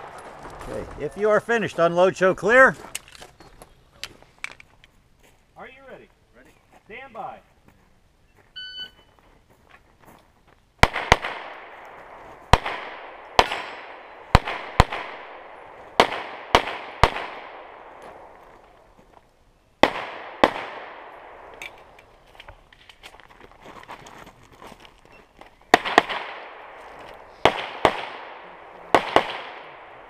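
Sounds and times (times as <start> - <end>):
pistol shots with ringing echo: 10.8 - 18.3, 19.8 - 21.9, 25.7 - 26.8, 27.4 - 30.0.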